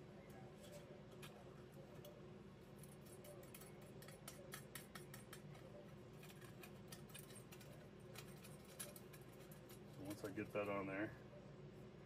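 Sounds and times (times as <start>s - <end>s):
low steady hum: 0.0s - 12.0s
small clicks of metal parts: 2.8s - 10.3s.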